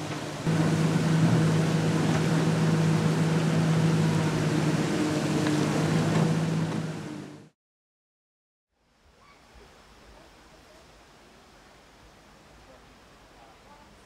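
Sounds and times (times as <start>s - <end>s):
excavator diesel engine hum: 0.0s - 7.5s.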